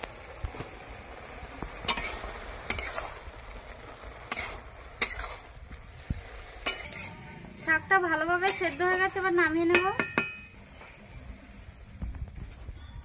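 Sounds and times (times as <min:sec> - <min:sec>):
metal spatula clinking on wok: 0:06.6 - 0:07.1.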